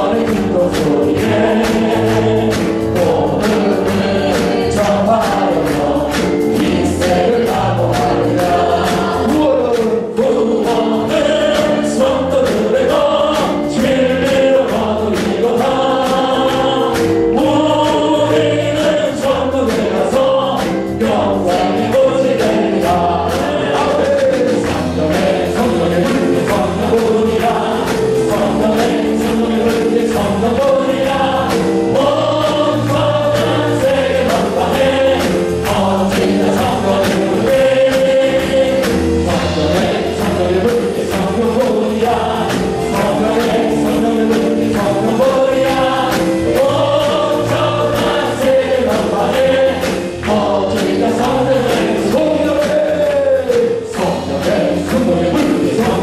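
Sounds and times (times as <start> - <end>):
man singing into microphone: 0.0 - 56.0
many voices singing along: 0.0 - 56.0
steady beat: 0.0 - 56.0.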